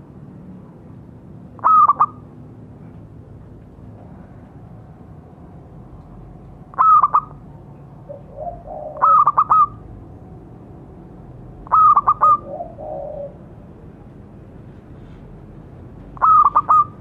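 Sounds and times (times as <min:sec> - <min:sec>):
dove cooing: 0:01.6 - 0:02.2, 0:06.7 - 0:07.4, 0:08.1 - 0:09.9, 0:11.6 - 0:13.6, 0:16.2 - 0:17.0.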